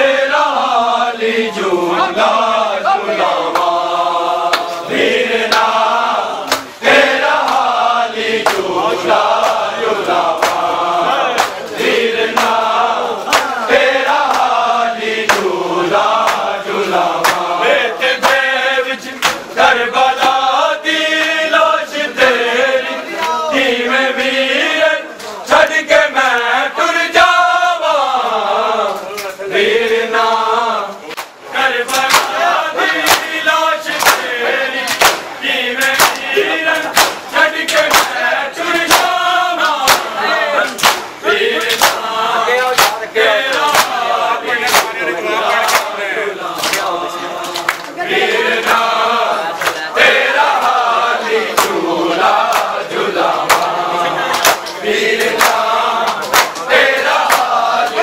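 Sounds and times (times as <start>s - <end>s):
men chanting a lament: 0.0s - 58.0s
chest beating slaps: 34.9s - 38.2s, 39.7s - 40.1s, 40.7s - 42.1s, 42.7s - 43.0s, 51.6s - 51.8s.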